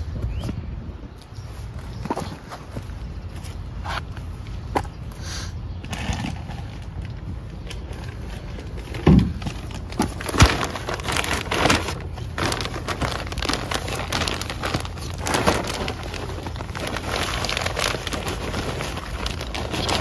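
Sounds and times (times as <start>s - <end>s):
soil rustling and crackling: 5.7s - 20.0s.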